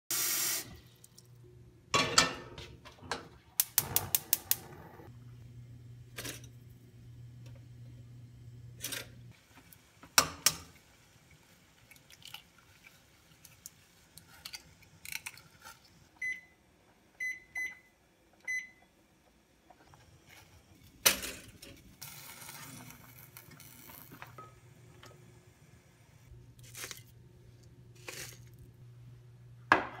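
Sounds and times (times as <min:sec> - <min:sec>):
pot and utensils clattering: 0:02.0 - 0:03.4.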